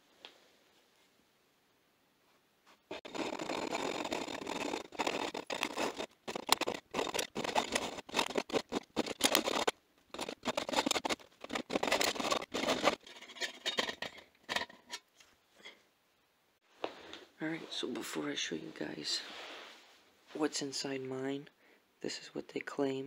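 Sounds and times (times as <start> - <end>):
hacksaw rasping through metal: 2.9 - 15.0.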